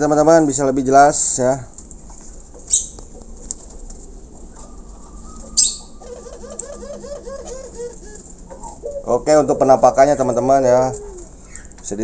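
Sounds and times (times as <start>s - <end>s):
dove cooing: 2.6s - 11.8s.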